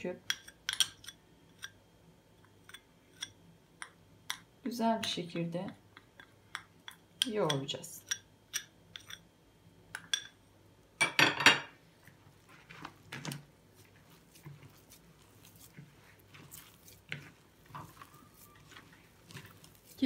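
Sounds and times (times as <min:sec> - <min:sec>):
hands kneading rustling: 0:12.0 - 0:20.0
spoon scraping plastic cup: 0:14.0 - 0:20.0.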